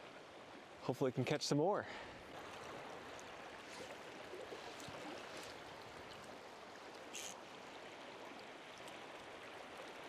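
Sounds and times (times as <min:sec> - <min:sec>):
stream water flowing: 0:00.0 - 0:10.0
faint ticks: 0:06.9 - 0:07.4.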